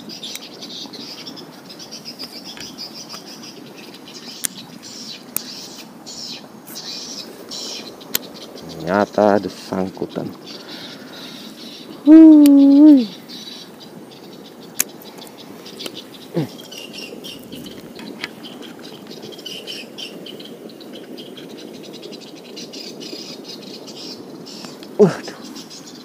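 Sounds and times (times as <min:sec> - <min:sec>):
loud wavering hoot: 0:12.0 - 0:13.2.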